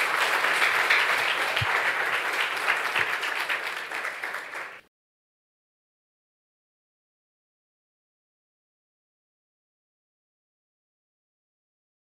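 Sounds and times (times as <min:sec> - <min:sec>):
congregation applauding: 0:00.0 - 0:04.9.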